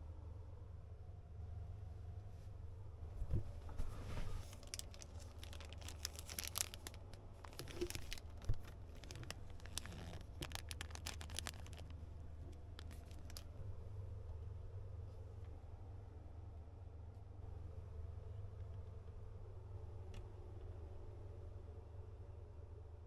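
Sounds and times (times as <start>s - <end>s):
plastic packet crinkling: 4.4s - 12.0s, 12.8s - 13.4s.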